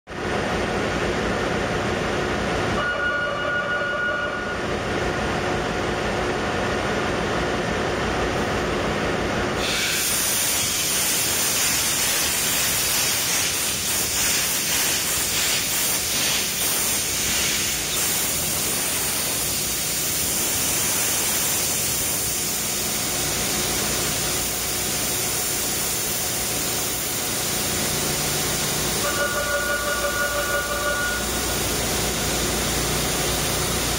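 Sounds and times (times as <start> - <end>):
engine-room machinery running: 0.1 - 33.9
brief tone: 2.8 - 4.7, 29.0 - 31.5
compressed air hissing: 9.6 - 33.9.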